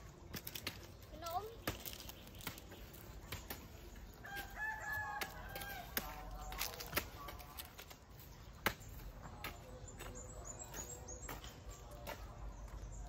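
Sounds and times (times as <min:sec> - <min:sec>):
rooster crowing: 0:04.2 - 0:06.1.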